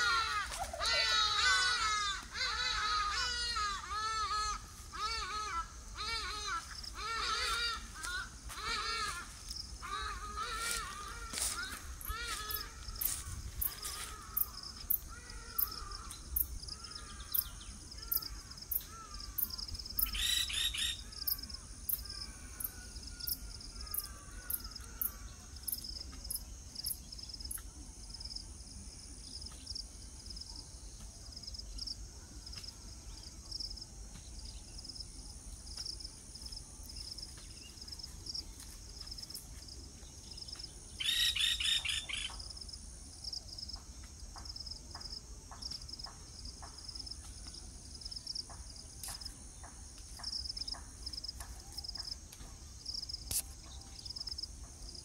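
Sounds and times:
high insect drone: 0:00.0 - 0:55.0
rapid trilling bird call: 0:19.4 - 0:21.4, 0:41.0 - 0:42.4.

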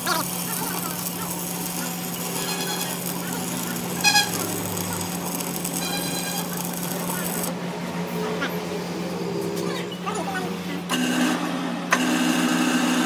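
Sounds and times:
welding arc crackling: 0:00.0 - 0:07.6.

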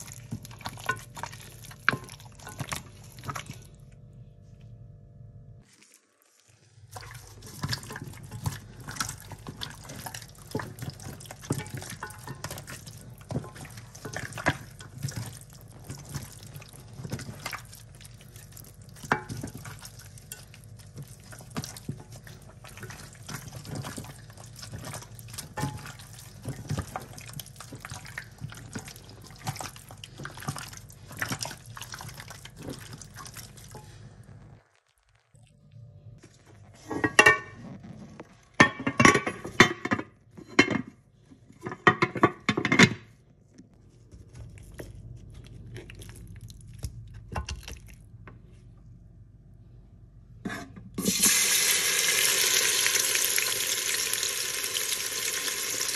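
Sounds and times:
wet squelches of kneading meat: 0:00.0 - 0:04.1, 0:05.6 - 0:36.9
steady low hum: 0:00.0 - 0:05.7, 0:06.6 - 0:40.0.

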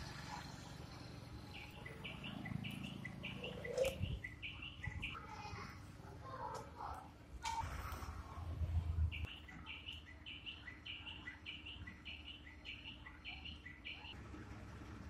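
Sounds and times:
low traffic rumble: 0:00.0 - 0:15.0
small bird calling: 0:01.6 - 0:07.9.

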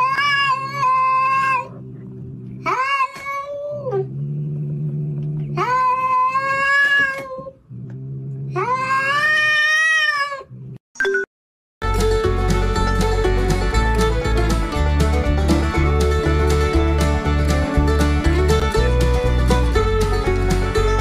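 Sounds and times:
cat yowling: 0:00.0 - 0:01.7, 0:05.6 - 0:07.6, 0:08.5 - 0:10.5
cat growling: 0:00.0 - 0:10.8.

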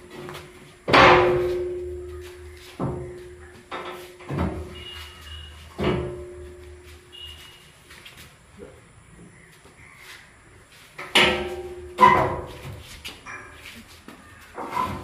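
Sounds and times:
heavy steel clangs ringing: 0:00.9 - 0:02.1, 0:11.2 - 0:12.5.

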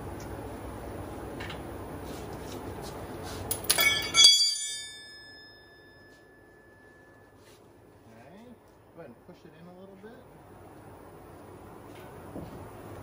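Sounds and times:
steady background noise: 0:00.0 - 0:13.0
wrenches clanking on metal: 0:03.5 - 0:05.4.

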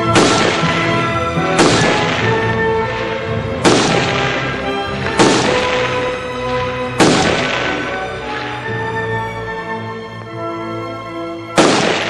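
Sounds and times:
rifle shots: 0:00.0 - 0:06.4, 0:07.0 - 0:08.7, 0:11.6 - 0:12.0
background music: 0:00.0 - 0:12.0.

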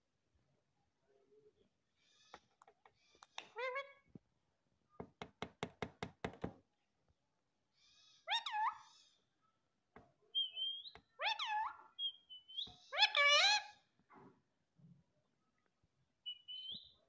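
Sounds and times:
parakeet tapping beak on mirror: 0:05.0 - 0:06.6.

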